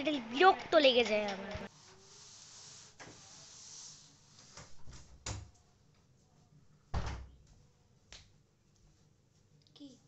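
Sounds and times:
wooden door thump: 6.9 - 7.3.

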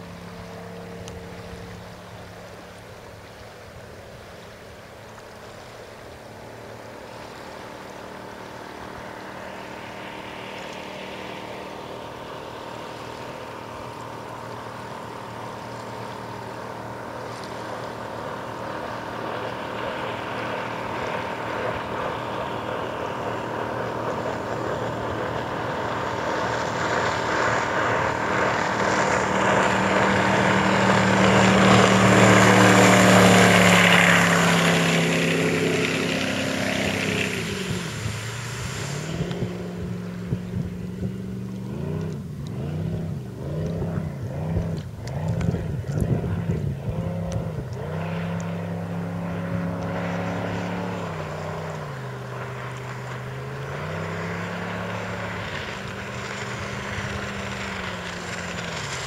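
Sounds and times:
powerboat engine: 0.0 - 59.0
hiss of boat spray: 37.4 - 39.6.

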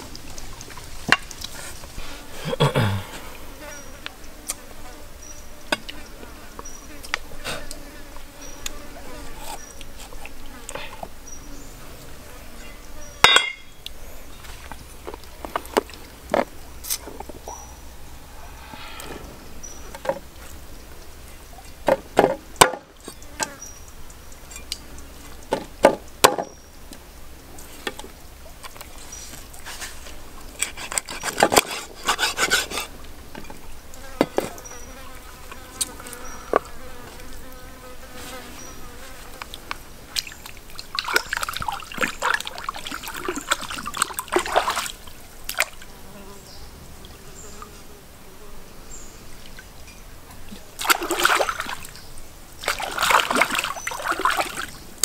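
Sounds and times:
insect buzz: 1.8 - 14.7, 16.6 - 21.3, 33.7 - 54.9
cutting and handling noise: 30.6 - 32.9.

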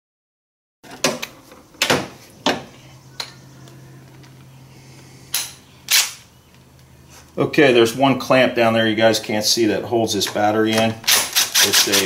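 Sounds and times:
faint low hum: 1.0 - 11.1
hand tools clicking and knocking: 10.2 - 12.0.

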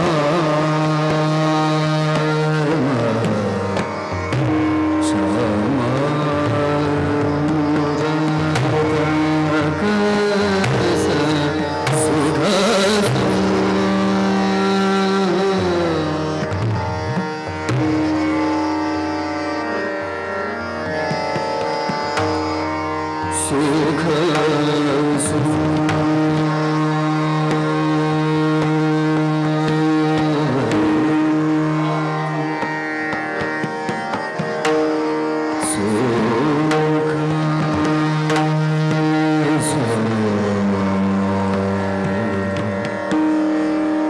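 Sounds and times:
man singing classical vocals: 0.0 - 17.3, 23.2 - 32.7, 35.5 - 44.0
harmonium: 0.0 - 44.0
tabla strokes: 0.0 - 44.0
tanpura drone: 0.0 - 44.0.

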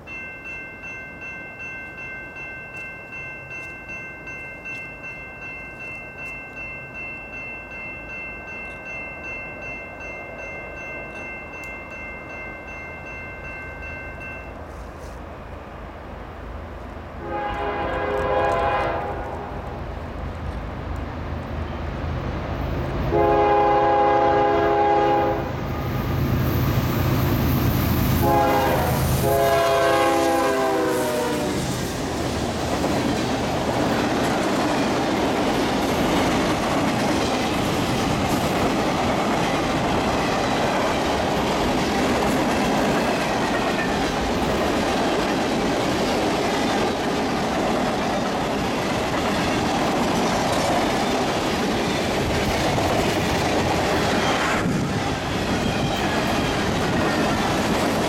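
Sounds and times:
crossing bell ringing: 0.0 - 15.1
locomotive horn blasts: 17.2 - 19.7, 23.1 - 25.5, 28.2 - 31.6.

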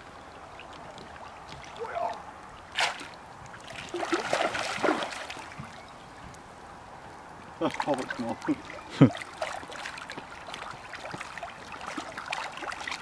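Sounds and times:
fish splashing and slurping: 0.0 - 6.1, 7.5 - 13.0
sharp water splash: 1.6 - 5.8, 7.6 - 13.0.

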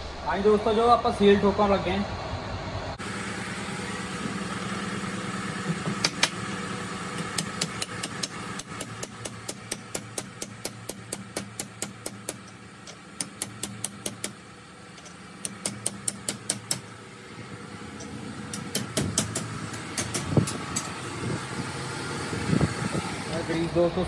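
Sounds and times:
engine-like hum: 0.0 - 24.0
hammer tapping steel socket: 7.2 - 14.4.

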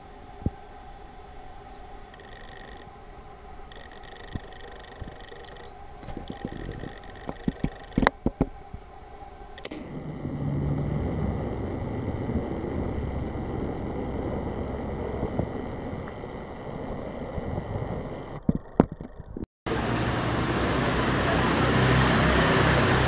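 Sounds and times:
low outdoor rumble: 0.0 - 23.0
sharp clicks: 3.7 - 8.5.

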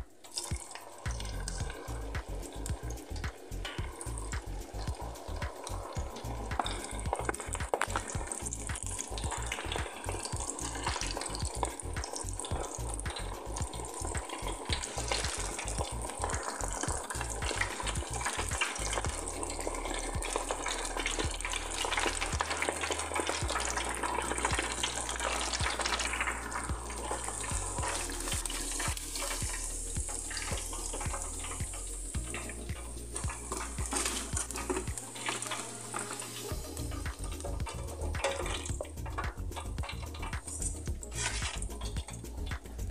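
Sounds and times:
oil bubbling and crackling: 0.0 - 42.9.

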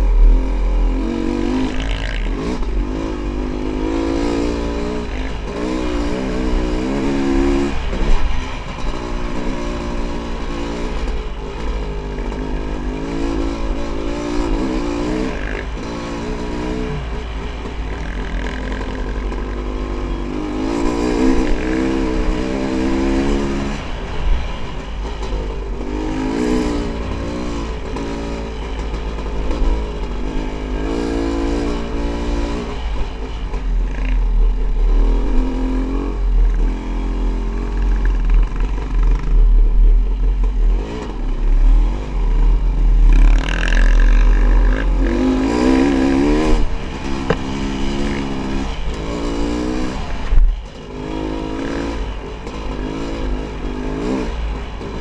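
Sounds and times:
dirt bike engine revving: 0.0 - 24.6, 25.2 - 55.0.

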